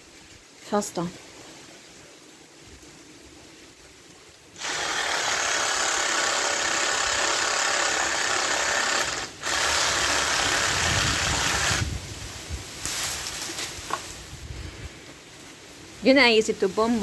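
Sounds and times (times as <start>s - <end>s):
power saw cutting branch: 4.6s - 12.0s.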